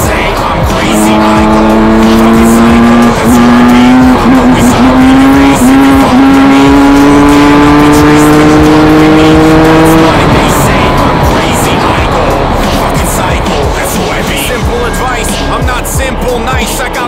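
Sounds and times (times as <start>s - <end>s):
motocross bike engine revving: 0.7s - 13.8s.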